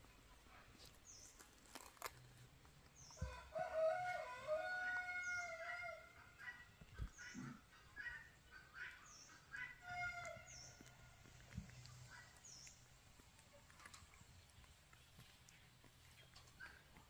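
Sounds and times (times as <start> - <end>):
rooster crowing: 3.2 - 6.1.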